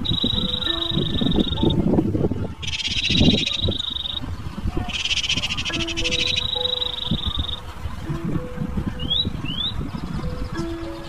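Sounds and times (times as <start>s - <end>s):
rapid buzzing trills: 0.0s - 11.0s
high-pitched drone: 4.9s - 7.8s.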